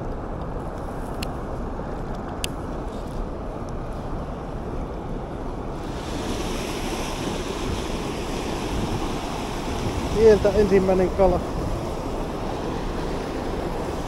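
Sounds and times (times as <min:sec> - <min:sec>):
whitewater river rapids: 0:05.7 - 0:14.0.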